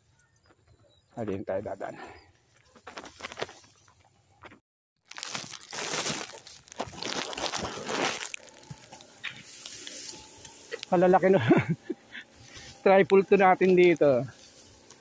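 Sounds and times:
rice stalks rustling and crackling: 2.5 - 4.0, 5.1 - 15.0.

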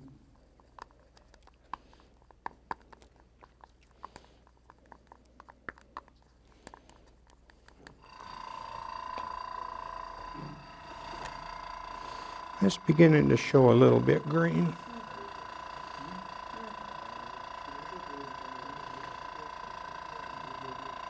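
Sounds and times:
small motor whining: 8.0 - 21.0.

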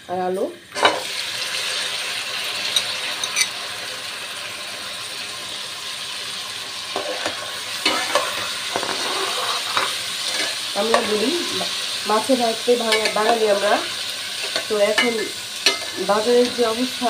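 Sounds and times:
vegetables sizzling in hot oil: 0.0 - 17.0
metal spatula scraping pan: 2.7 - 3.6, 7.0 - 11.8, 12.8 - 16.7.

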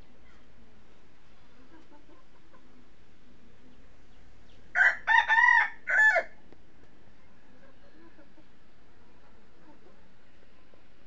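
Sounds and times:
rooster crowing: 4.8 - 6.4.

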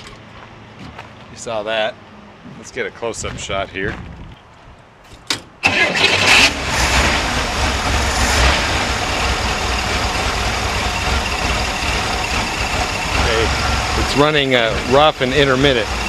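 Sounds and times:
car engine running rough: 5.8 - 16.0.

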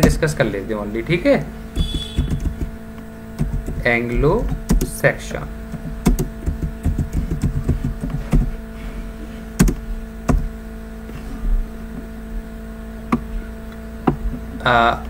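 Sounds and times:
electrical hum: 0.0 - 15.0
keyboard typing: 1.8 - 2.8, 3.4 - 5.0, 5.7 - 8.5, 9.6 - 10.5.

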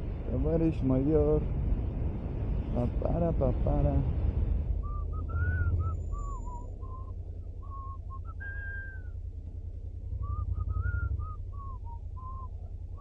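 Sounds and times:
person whistling a tune: 4.8 - 9.1, 10.2 - 12.5
motorcycle engine droning: 4.8 - 13.0.

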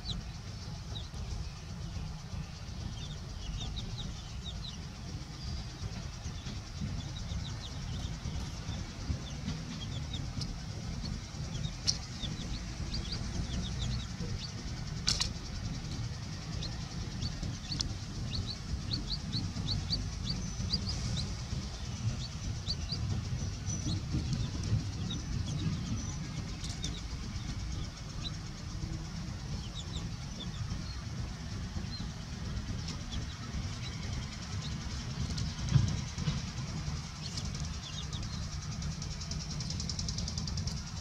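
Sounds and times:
baby chicks peeping: 0.0 - 41.0
low steady rumble: 0.0 - 41.0
sharp clicks: 9.8 - 21.3.

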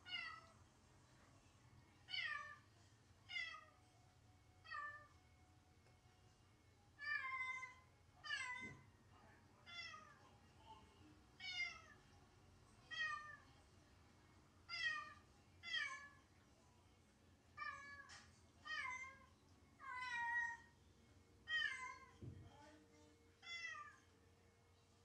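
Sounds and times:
cat meowing: 0.0 - 0.5, 7.0 - 8.8, 17.6 - 20.7, 21.5 - 22.2, 23.4 - 24.1.

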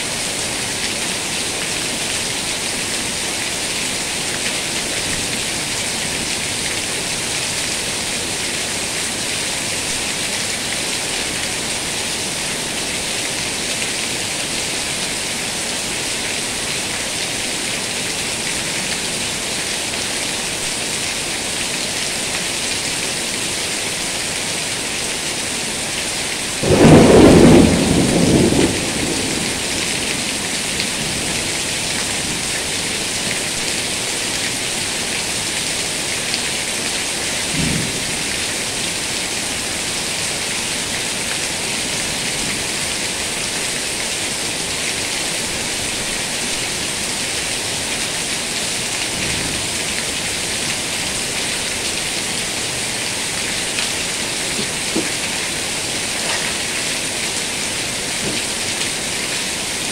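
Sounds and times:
heavy rain pouring: 0.0 - 59.9
loud thunder clap rumbling: 26.6 - 31.3.

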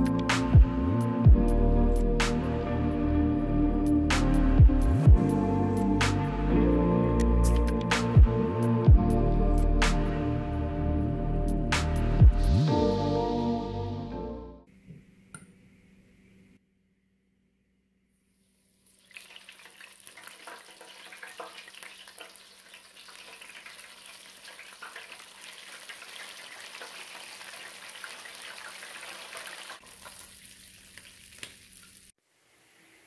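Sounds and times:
fish deep-frying in oil: 18.8 - 32.1.

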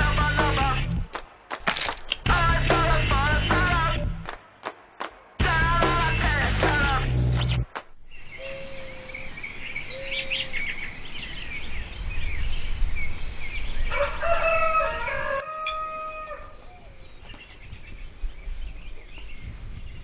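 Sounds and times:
small birds chirping: 7.3 - 14.2, 15.2 - 20.0
rooster crowing: 13.8 - 16.9.

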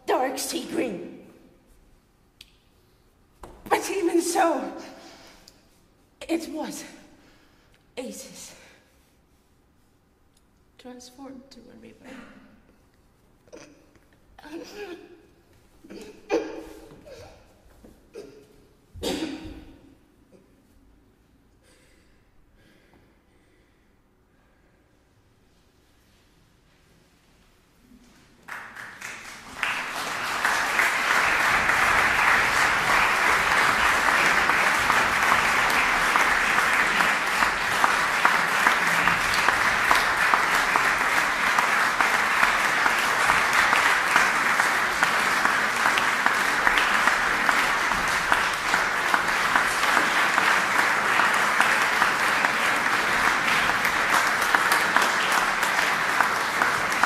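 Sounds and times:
audience applause: 28.5 - 57.0.

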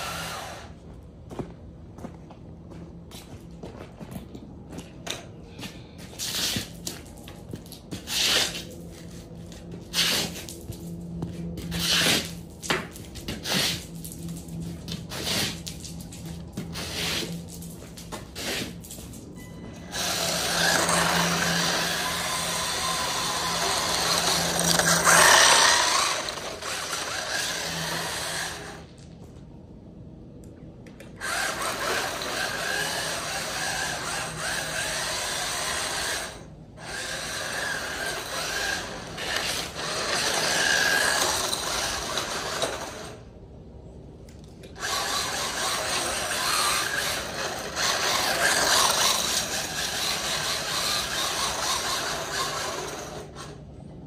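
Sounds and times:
small electric toy car motor: 0.0 - 0.8, 19.8 - 28.9, 31.0 - 43.3, 44.6 - 53.7.

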